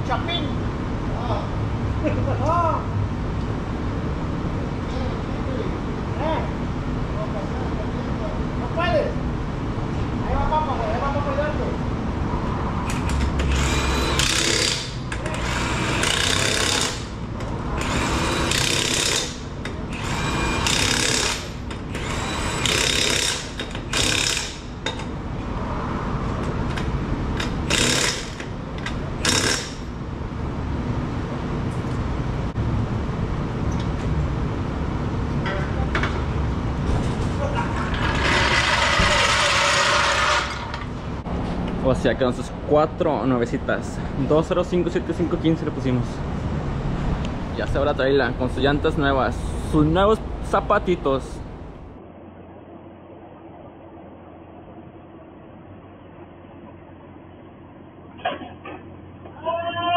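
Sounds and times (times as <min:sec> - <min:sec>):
impact wrench bursts: 0:12.9 - 0:25.1, 0:27.4 - 0:28.6, 0:29.2 - 0:30.0, 0:38.0 - 0:40.8.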